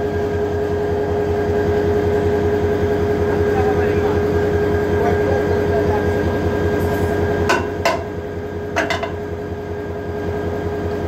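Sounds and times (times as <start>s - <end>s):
diesel locomotive engine idling: 0.0s - 11.0s
hammer striking metal: 7.5s - 8.2s, 8.8s - 9.2s.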